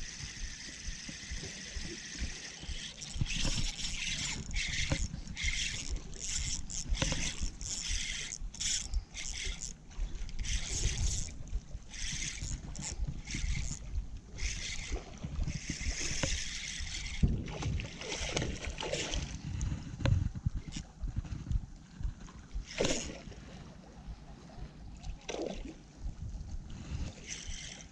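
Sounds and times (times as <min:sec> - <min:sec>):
water lapping against rocks: 0:00.0 - 0:19.4
wind gusting over microphone: 0:02.6 - 0:23.1.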